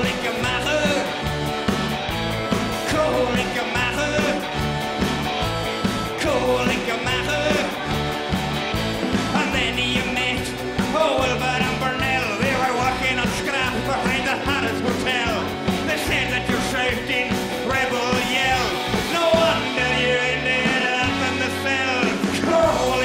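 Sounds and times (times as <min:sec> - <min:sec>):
man singing into microphone: 0:00.0 - 0:01.2, 0:02.8 - 0:04.4, 0:06.2 - 0:07.8, 0:09.3 - 0:23.0
drums and cymbals: 0:00.0 - 0:23.0.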